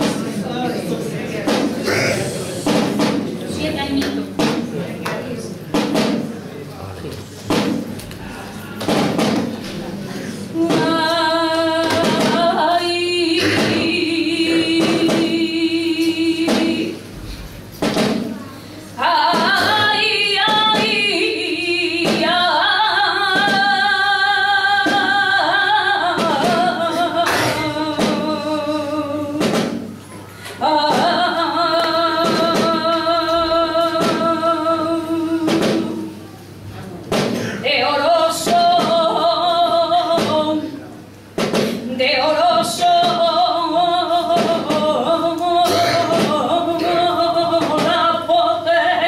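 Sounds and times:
woman singing flamenco: 0:00.0 - 0:00.4, 0:10.4 - 0:17.2, 0:18.9 - 0:36.2, 0:37.1 - 0:40.8, 0:41.4 - 0:49.0
drum strokes: 0:01.4 - 0:04.8, 0:05.7 - 0:06.4, 0:07.5 - 0:08.0, 0:08.8 - 0:09.7, 0:10.6 - 0:18.5, 0:26.0 - 0:30.0, 0:30.8 - 0:36.2, 0:41.3 - 0:41.9.

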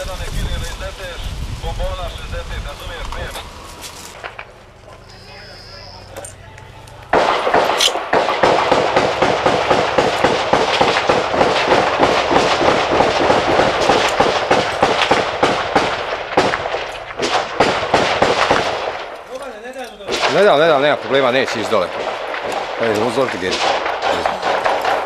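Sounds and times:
heavy automatic gunfire: 0:07.1 - 0:19.2, 0:20.0 - 0:25.0.

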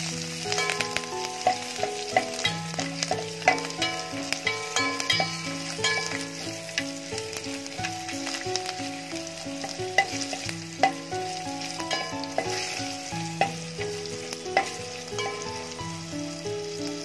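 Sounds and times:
spices sizzling in hot oil: 0:00.0 - 0:17.0
spoon clinking against pot: 0:00.5 - 0:06.5, 0:09.6 - 0:11.1, 0:11.8 - 0:15.7.

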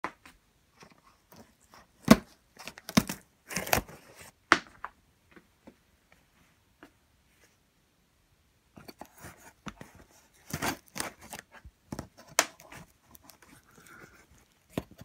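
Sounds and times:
cardboard scraping rustle: 0:08.8 - 0:15.0.

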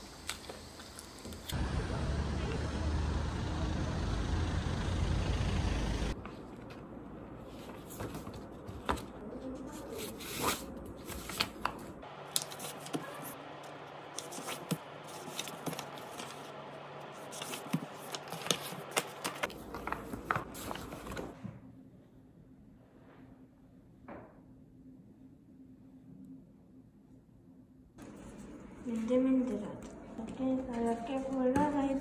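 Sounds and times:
paper rustling: 0:07.4 - 0:21.4.

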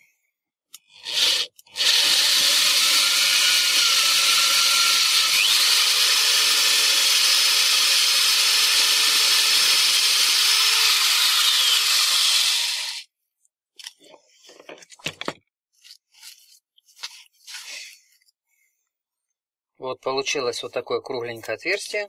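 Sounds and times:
power drill cutting metal: 0:01.0 - 0:13.1.

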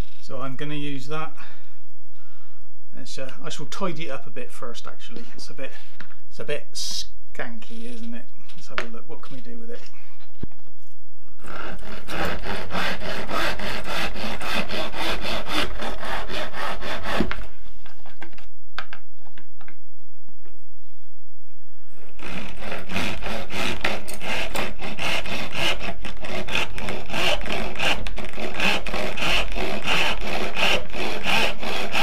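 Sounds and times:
hand saw cutting wood: 0:11.4 - 0:17.9, 0:22.0 - 0:32.0.

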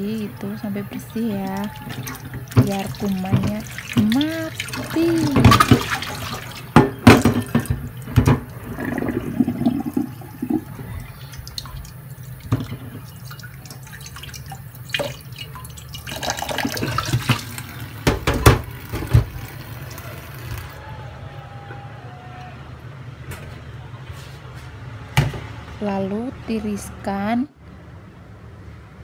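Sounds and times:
tap water running into bowl: 0:00.1 - 0:20.7
splashes and knocks: 0:01.4 - 0:10.7, 0:11.4 - 0:19.5.

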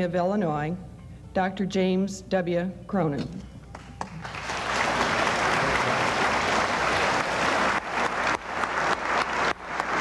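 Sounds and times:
audience applauding: 0:03.8 - 0:10.0.

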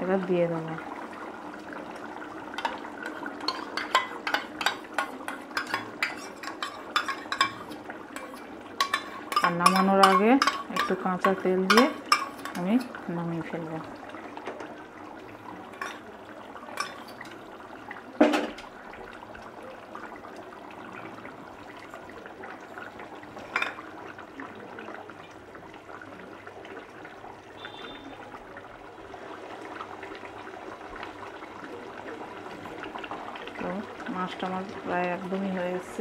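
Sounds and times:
gravy bubbling in pan: 0:00.0 - 0:36.0.

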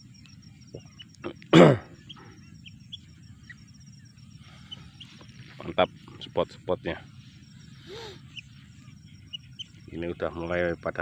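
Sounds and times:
faint bird chirps: 0:00.0 - 0:11.0
insect trilling: 0:00.0 - 0:11.0
man coughing: 0:01.5 - 0:02.0.

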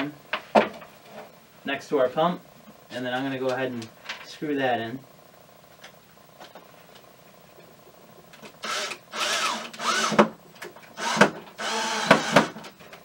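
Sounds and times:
cordless drill driving screws: 0:08.6 - 0:10.2, 0:11.0 - 0:12.6.

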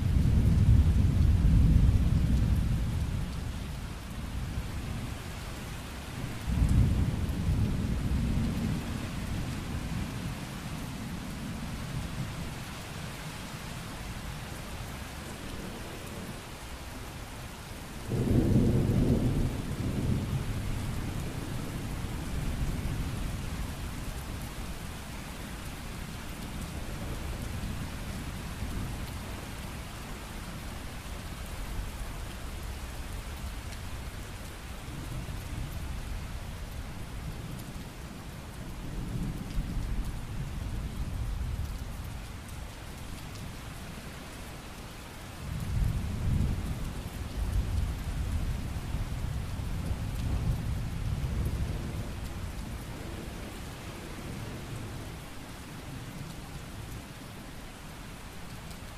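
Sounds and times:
low rolling thunder: 0:00.0 - 0:03.3, 0:06.4 - 0:10.2, 0:18.1 - 0:23.6, 0:45.5 - 0:53.5
steady rain falling: 0:00.0 - 0:58.9.

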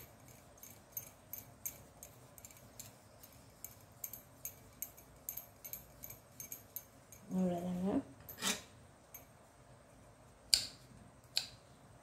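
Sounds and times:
light clinking ticks: 0:00.0 - 0:07.4, 0:09.1 - 0:09.4.

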